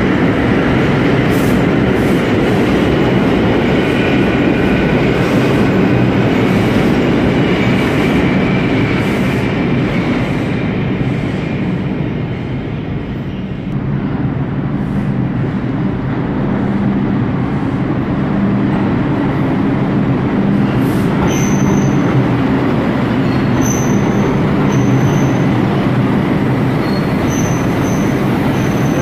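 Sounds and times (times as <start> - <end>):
subway train rumbling: 0.0 - 29.0
wheel squeals: 21.2 - 22.1, 23.1 - 25.5, 26.8 - 29.0.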